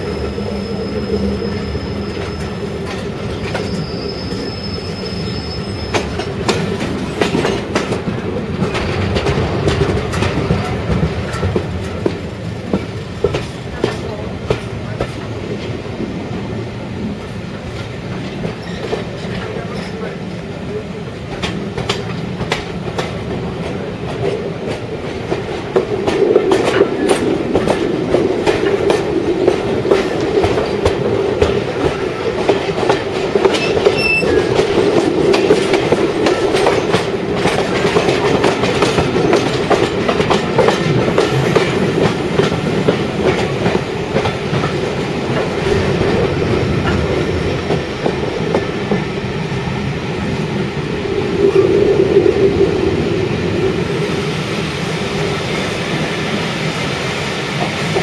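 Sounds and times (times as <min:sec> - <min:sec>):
train rolling rumble: 0:00.0 - 0:58.0
wheels clicking over rail joints: 0:21.3 - 0:49.1.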